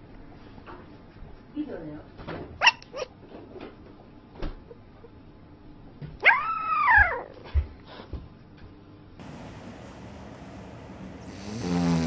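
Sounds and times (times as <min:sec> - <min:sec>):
puppy whining: 0:02.6 - 0:03.2, 0:06.2 - 0:07.5.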